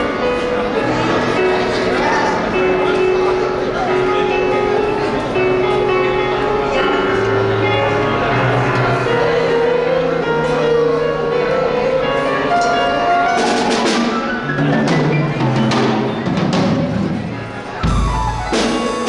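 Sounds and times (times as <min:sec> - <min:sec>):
held melodic notes: 0:00.0 - 0:19.0
bass line: 0:13.3 - 0:19.0
percussion hits: 0:13.3 - 0:19.0.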